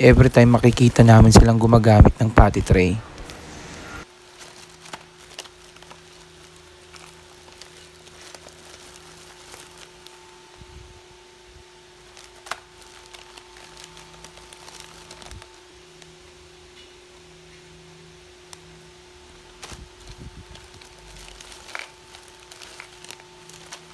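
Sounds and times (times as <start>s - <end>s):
steady low hum: 0.0s - 23.9s
plastic bag crinkling: 4.1s - 10.7s, 11.9s - 16.1s, 19.4s - 23.9s.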